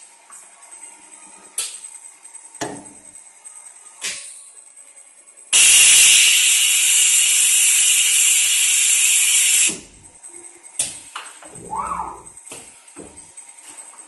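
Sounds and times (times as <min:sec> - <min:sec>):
compressed air hissing: 0:05.6 - 0:10.0.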